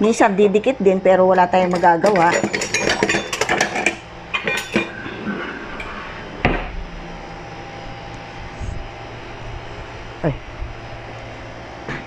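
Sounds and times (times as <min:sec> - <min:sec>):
steady low hum: 0:00.0 - 0:12.0
jars and utensils clinking: 0:01.6 - 0:05.1.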